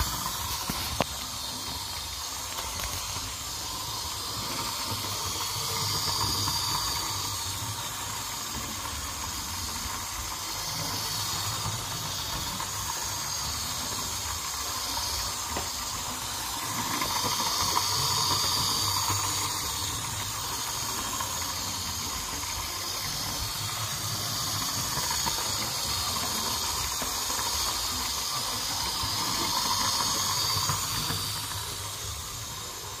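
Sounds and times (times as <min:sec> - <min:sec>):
model train motor whirr: 0:00.0 - 0:33.0
wheels hissing on rails: 0:00.0 - 0:33.0.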